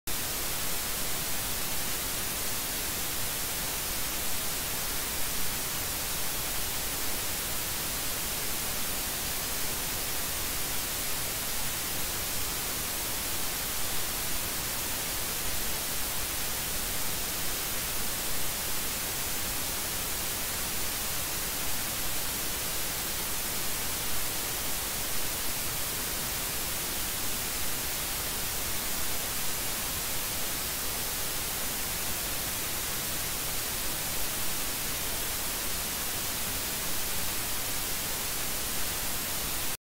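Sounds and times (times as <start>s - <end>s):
recording hiss: 0.1s - 39.8s.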